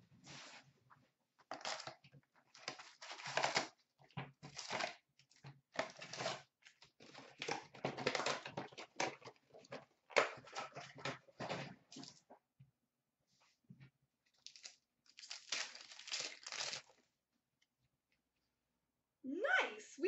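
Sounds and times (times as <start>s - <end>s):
packs rustling and crinkling: 1.5s - 3.7s, 14.4s - 17.0s.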